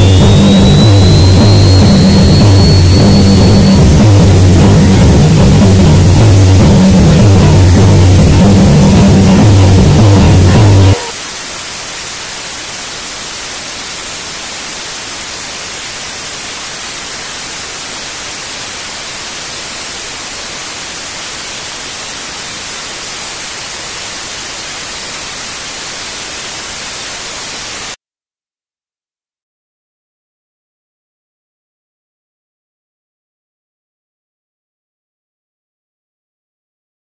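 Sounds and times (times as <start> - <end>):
electronic static hiss: 0.0 - 28.0.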